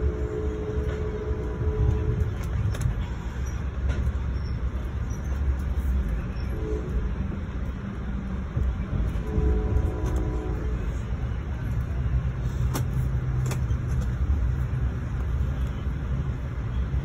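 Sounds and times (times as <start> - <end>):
train car rumbling: 0.0 - 17.0.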